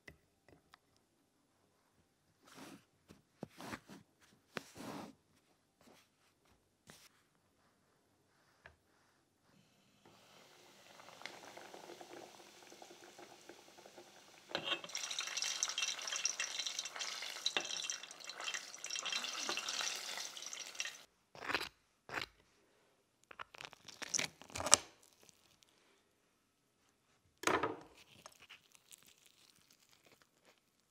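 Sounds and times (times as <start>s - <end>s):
chicken deep-frying in oil: 10.0s - 21.1s.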